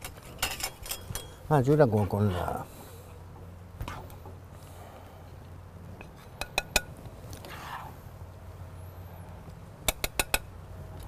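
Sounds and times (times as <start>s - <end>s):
utensils clinking against dishes: 0.0s - 1.4s
low steady hum: 0.0s - 11.0s.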